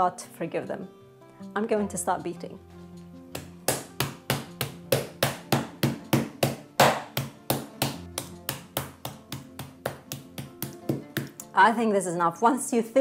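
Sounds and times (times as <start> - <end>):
rolling pin beating meat on board: 3.3 - 11.4.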